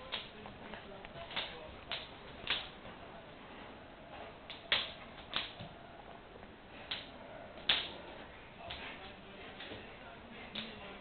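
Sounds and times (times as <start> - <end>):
dog claws clicking on laminate floor: 4.5 - 5.7.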